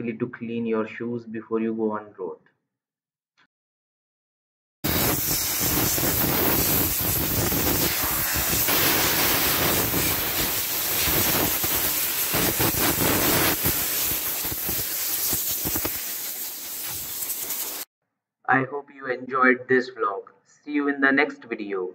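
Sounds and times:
compressed air hissing: 0:04.8 - 0:17.9.

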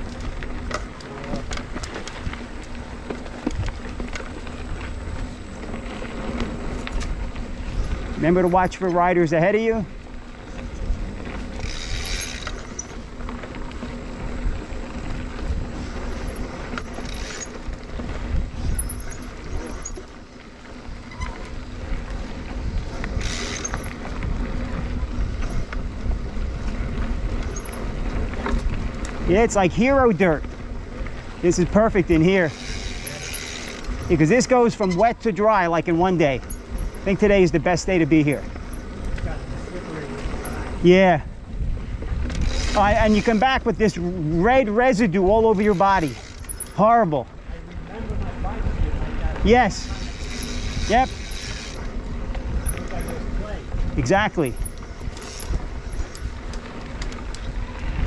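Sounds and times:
bike clicks and rattles: 0:00.0 - 0:58.0
bike tyres rumbling on dirt: 0:00.0 - 0:58.0
wind on microphone: 0:18.0 - 0:19.7, 0:40.6 - 0:44.2, 0:47.4 - 0:58.0.

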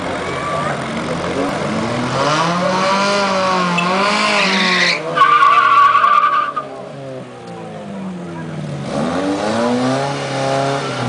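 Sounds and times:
car engines revving: 0:00.0 - 0:11.0
spinning tires hissing: 0:00.9 - 0:06.8
loud tire squeal: 0:02.8 - 0:06.7.

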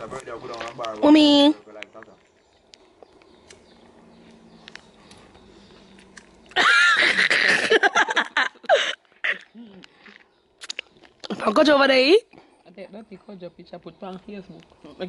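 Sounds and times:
woman laughing: 0:06.6 - 0:09.8.

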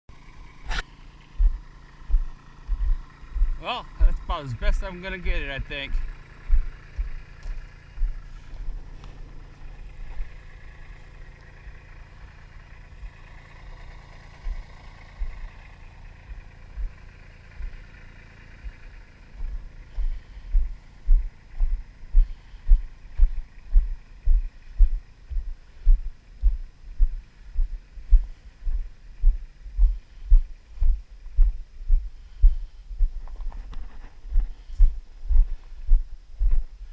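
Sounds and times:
low steady hum: 0:00.1 - 0:36.9
footsteps on dirt: 0:00.6 - 0:11.6, 0:12.9 - 0:36.9.

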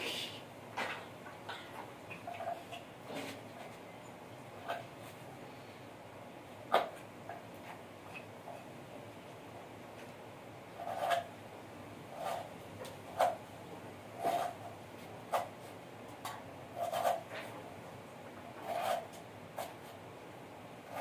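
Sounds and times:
scraping on concrete floor: 0:10.8 - 0:11.3, 0:14.2 - 0:15.8, 0:18.5 - 0:20.0.

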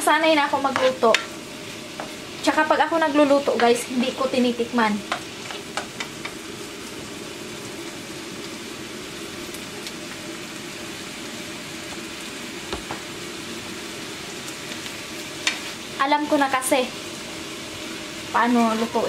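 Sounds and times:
meat and onions sizzling in a pan: 0:00.0 - 0:19.0.

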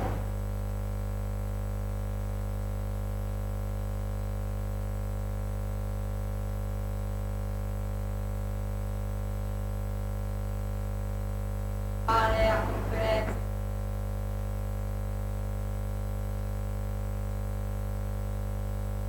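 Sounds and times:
electrical mains hum: 0:00.0 - 0:01.1, 0:10.2 - 0:19.0.

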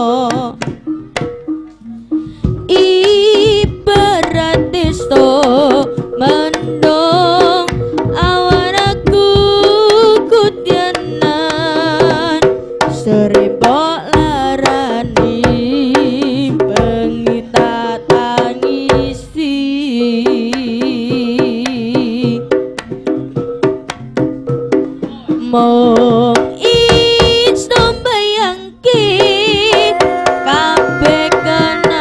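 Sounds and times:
hand drum strokes: 0:00.1 - 0:19.2, 0:28.9 - 0:32.0
band playing melodic passage: 0:00.7 - 0:03.9, 0:29.7 - 0:32.0.

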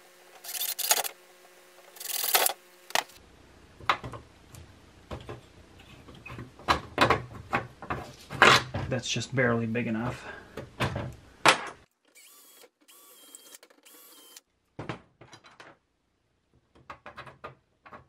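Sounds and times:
cordless drill running: 0:12.1 - 0:14.4.

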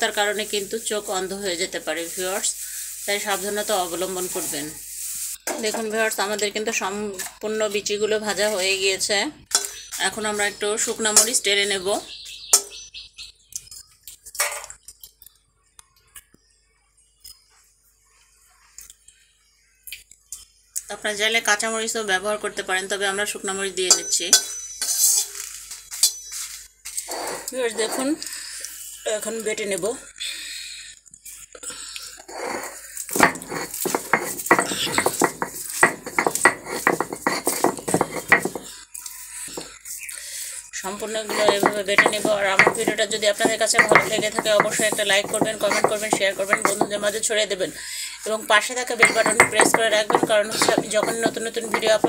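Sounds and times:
pestle scraping: 0:32.3 - 0:38.7, 0:41.0 - 0:47.4, 0:48.9 - 0:52.0
pestle clinking on stone bowl: 0:33.1 - 0:38.7, 0:41.2 - 0:47.3, 0:48.9 - 0:52.0.

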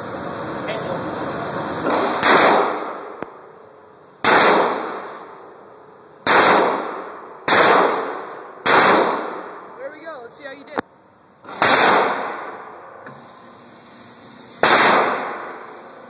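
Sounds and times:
pistol shots echoing indoors: 0:04.2 - 0:04.9, 0:06.2 - 0:09.5, 0:11.5 - 0:12.6, 0:14.6 - 0:15.6.

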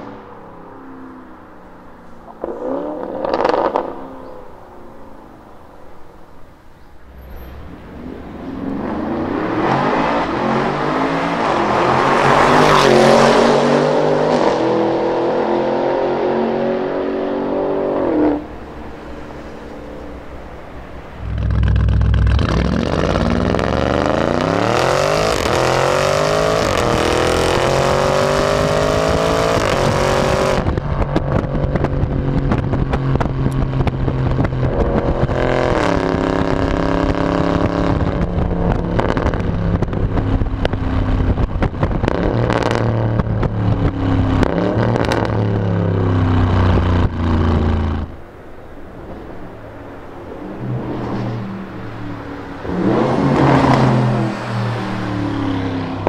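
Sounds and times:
exhaust crackles: 0:18.4 - 0:25.8
car engine accelerating hard: 0:21.1 - 0:48.2.

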